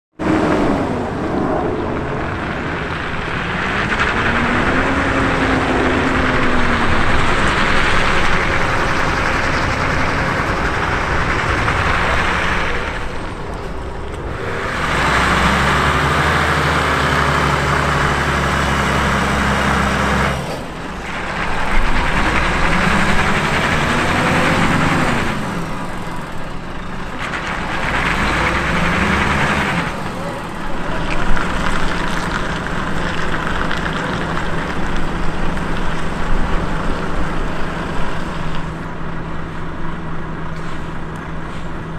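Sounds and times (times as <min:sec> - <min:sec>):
truck diesel engine under load: 0:00.1 - 0:41.9.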